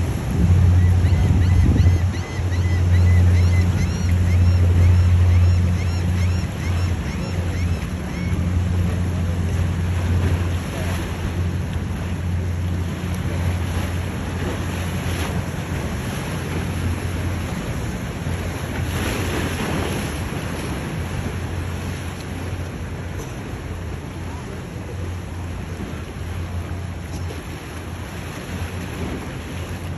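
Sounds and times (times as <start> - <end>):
wind buffeting microphone: 0.0 - 2.5
powerboat engines droning: 0.0 - 29.9
waves breaking: 0.0 - 29.9.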